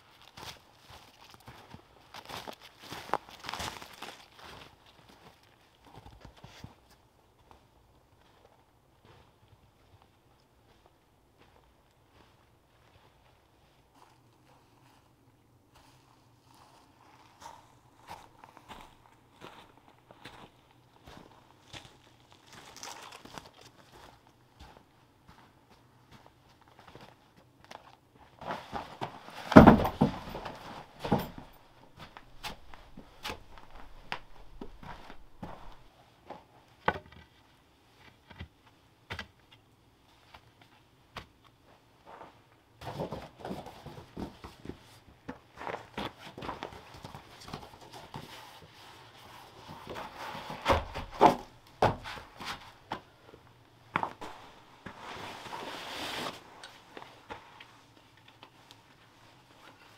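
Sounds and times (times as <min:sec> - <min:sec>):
footsteps: 0:15.7 - 0:27.1, 0:28.4 - 0:36.4, 0:41.7 - 0:58.1
knocks and rustles of camping gear: 0:28.4 - 0:37.4, 0:42.8 - 0:48.7, 0:49.6 - 0:53.1.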